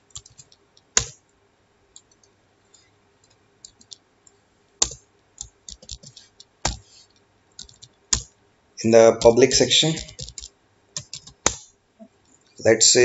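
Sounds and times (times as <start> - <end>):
keyboard keystroke clicks: 0.1 - 1.2, 4.8 - 6.8, 9.2 - 11.6.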